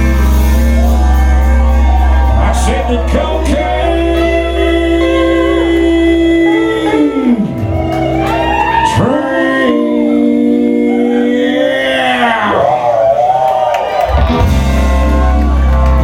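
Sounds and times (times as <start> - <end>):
country band with electric guitars: 0.0 - 11.2, 13.9 - 16.0
person singing: 0.0 - 12.8.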